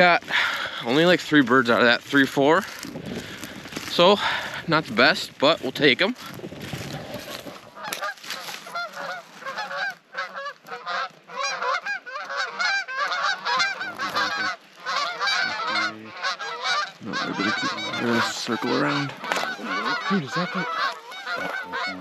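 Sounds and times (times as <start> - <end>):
geese honking in flight: 7.0 - 22.0.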